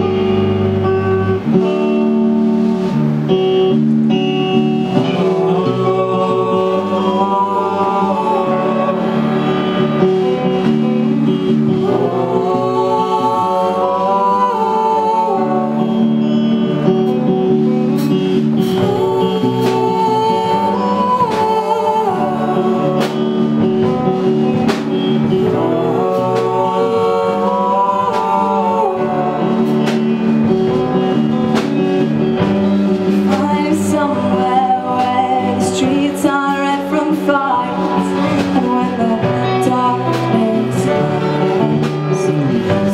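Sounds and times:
drums: 0:00.0 - 0:42.9
electric guitars: 0:00.0 - 0:42.9
piano: 0:00.0 - 0:42.9
person singing: 0:04.6 - 0:31.6, 0:33.1 - 0:42.9.

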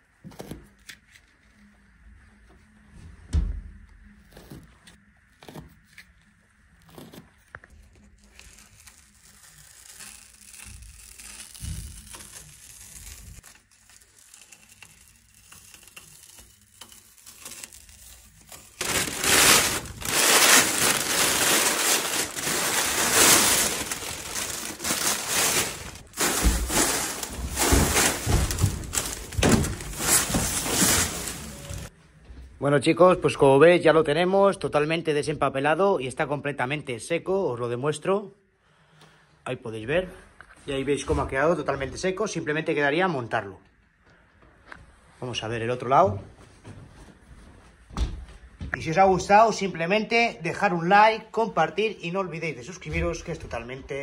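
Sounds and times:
paper crinkling and tearing: 0:06.8 - 0:31.9
tape peeling off car: 0:08.1 - 0:31.9.

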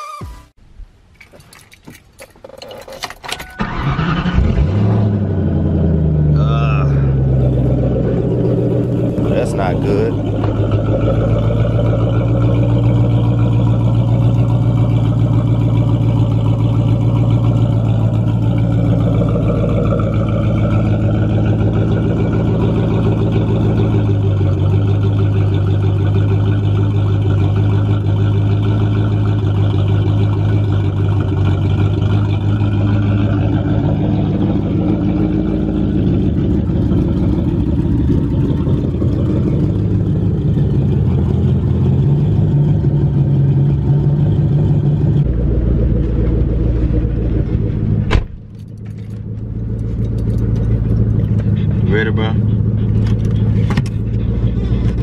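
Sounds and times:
car engine idling roughly: 0:06.9 - 0:55.0.

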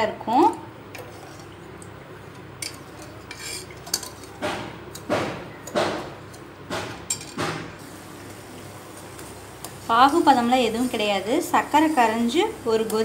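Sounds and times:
spoon scraping and clinking in a pot: 0:02.6 - 0:04.3.

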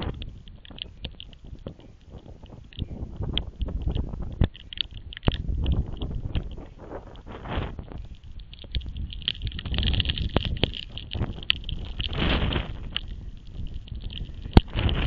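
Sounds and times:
rain hiss: 0:00.0 - 0:15.0
wind buffeting the microphone: 0:00.0 - 0:15.0.

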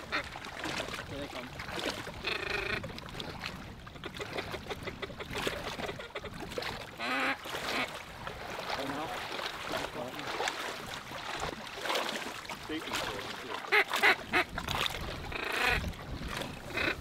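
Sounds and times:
raspy duck calls: 0:00.0 - 0:00.3, 0:02.2 - 0:02.9, 0:04.0 - 0:06.4, 0:07.0 - 0:07.9, 0:13.6 - 0:14.6, 0:15.3 - 0:15.8, 0:16.6 - 0:17.0
wind noise: 0:14.3 - 0:17.0.

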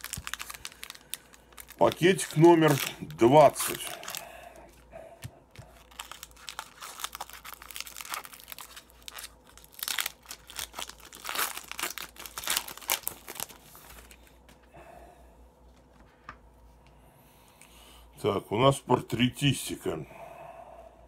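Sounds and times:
foil wrapper crinkling and tearing: 0:00.0 - 0:04.3, 0:05.5 - 0:14.3.

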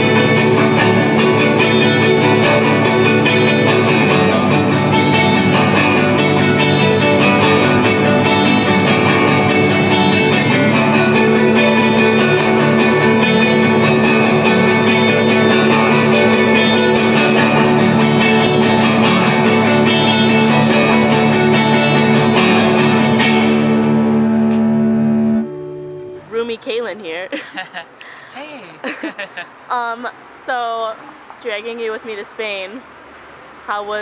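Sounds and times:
guitar instrumental music: 0:00.0 - 0:27.0.

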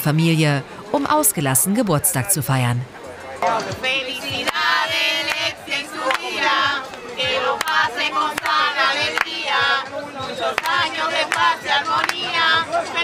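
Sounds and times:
women singing together: 0:03.7 - 0:13.0
hands clapping: 0:05.2 - 0:07.0, 0:07.6 - 0:09.4, 0:10.6 - 0:12.3.

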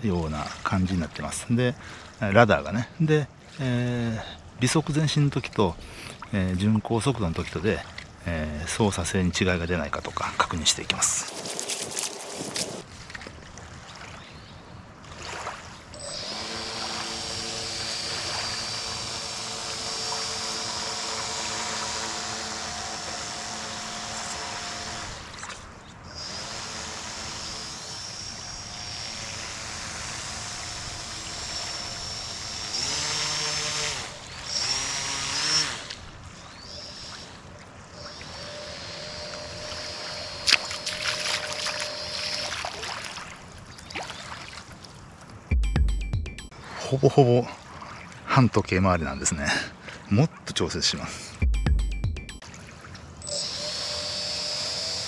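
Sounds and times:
model boat motor whining: 0:15.9 - 0:42.8, 0:53.2 - 0:55.0.

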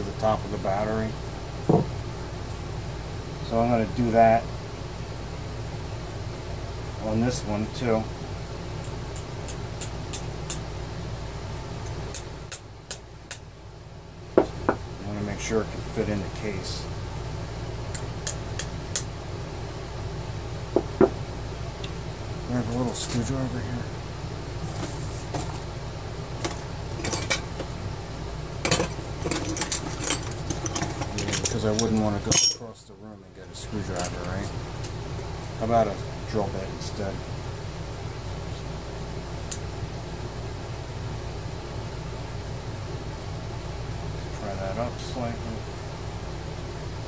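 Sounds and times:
steady low hum: 0:00.0 - 0:47.0
metal hand tools clinking: 0:28.7 - 0:32.6.

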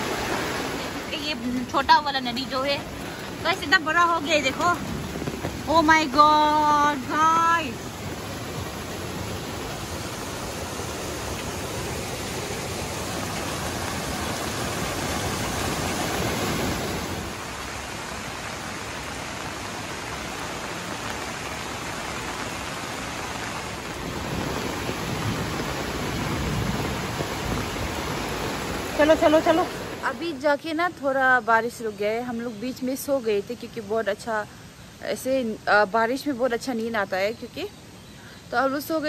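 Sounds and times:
heavy rain falling: 0:00.0 - 0:30.6
stream rushing over rocks: 0:00.0 - 0:30.6.

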